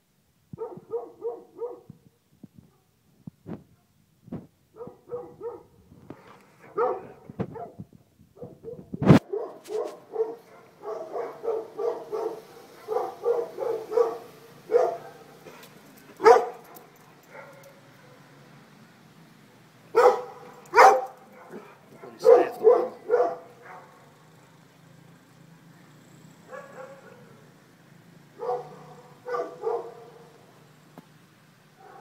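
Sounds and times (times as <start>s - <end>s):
dog barking: 0.6s - 1.9s, 4.8s - 5.7s, 6.6s - 7.8s, 8.4s - 15.6s, 16.2s - 18.2s, 19.9s - 24.0s, 26.5s - 27.4s, 28.4s - 30.3s, 31.8s - 32.0s.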